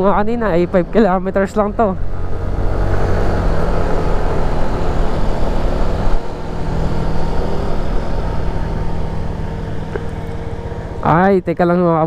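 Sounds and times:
wind and road noise: 0.0s - 12.0s
scooter engine running: 3.2s - 11.3s.

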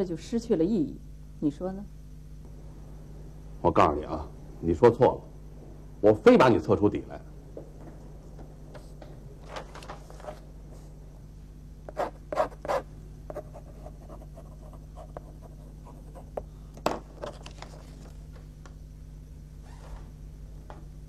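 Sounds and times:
low steady hum: 0.0s - 21.0s
pen nib scratching paper: 11.9s - 16.4s.

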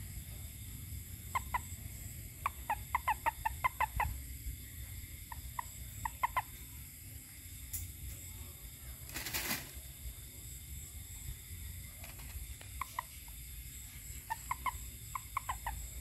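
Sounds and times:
frog calling: 0.0s - 6.9s, 12.0s - 16.0s.

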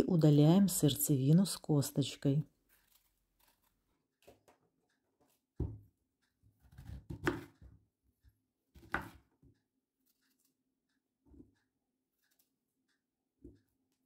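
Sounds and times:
knife cutting pear: 2.7s - 3.9s, 6.5s - 7.8s, 8.7s - 9.3s.

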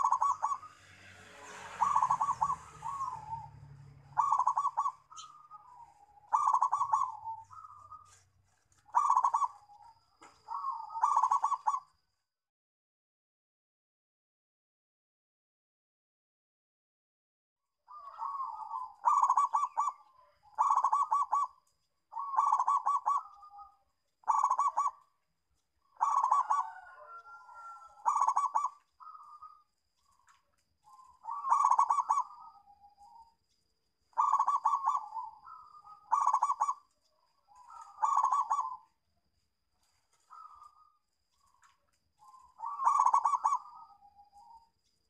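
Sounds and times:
dove cooing: 0.0s - 0.8s, 1.4s - 8.2s, 8.8s - 11.9s, 17.9s - 25.1s, 25.8s - 33.4s, 34.1s - 39.1s, 39.8s - 44.7s.

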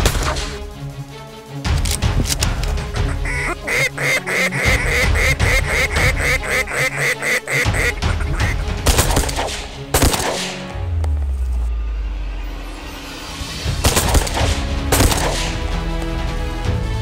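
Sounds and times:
duck call quacks: 2.9s - 8.8s.

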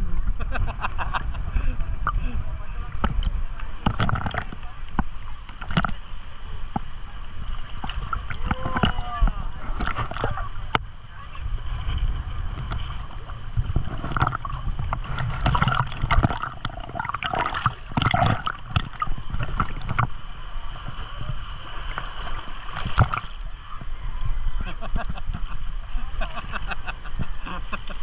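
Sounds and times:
seawater lapping and splashing: 1.8s - 28.0s
steady low rumble: 6.6s - 25.5s.

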